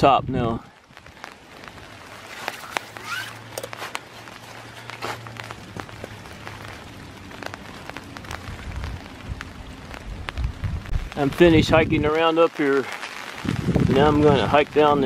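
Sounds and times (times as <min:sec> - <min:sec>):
light rain on leaves: 0:00.0 - 0:15.0
footsteps through wet leaves: 0:00.8 - 0:11.4.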